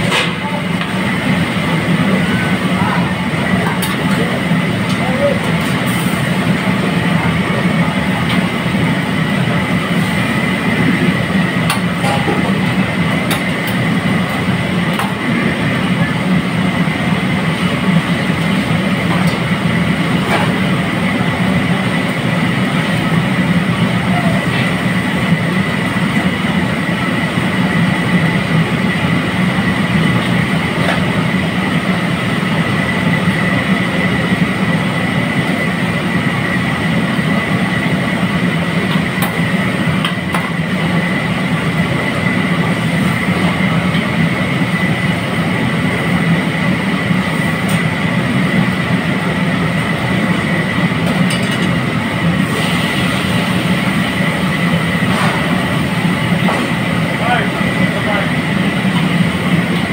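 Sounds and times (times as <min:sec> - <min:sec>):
gas burner roaring: 0:00.0 - 0:59.9
steady whine: 0:00.0 - 0:59.9
oil bubbling and sizzling: 0:37.1 - 0:57.1.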